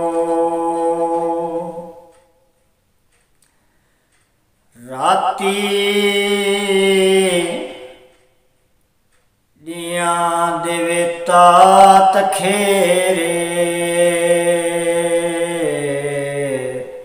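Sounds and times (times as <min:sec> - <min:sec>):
man singing unaccompanied: 0:00.0 - 0:02.3, 0:04.8 - 0:08.1, 0:09.6 - 0:17.0.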